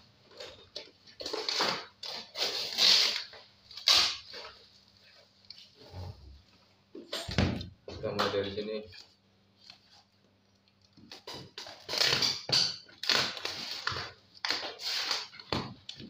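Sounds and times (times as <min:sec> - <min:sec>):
packing tape ripping: 0:01.2 - 0:04.6, 0:11.0 - 0:15.5.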